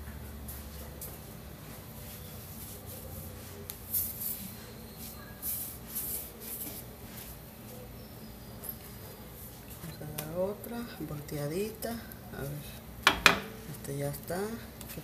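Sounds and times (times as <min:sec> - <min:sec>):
soft hisses of cooking tortillas: 0:00.0 - 0:08.0
gas burner hum: 0:09.7 - 0:14.9.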